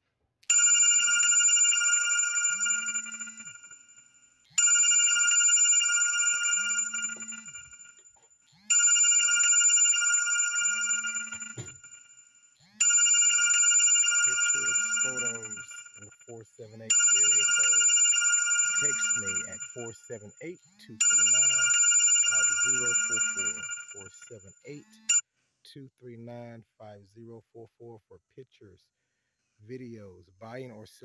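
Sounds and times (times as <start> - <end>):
electronic chime melody: 0.5 - 25.2
bright bell-like note: 21.1 - 24.1.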